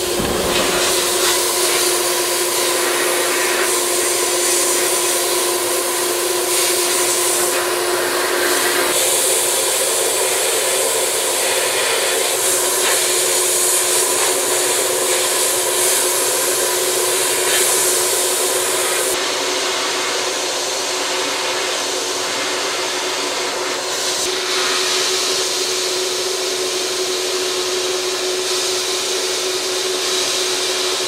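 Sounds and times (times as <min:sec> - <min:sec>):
air blast nozzle hissing: 0:00.0 - 0:05.3, 0:06.4 - 0:19.2
steady hum: 0:00.0 - 0:12.6.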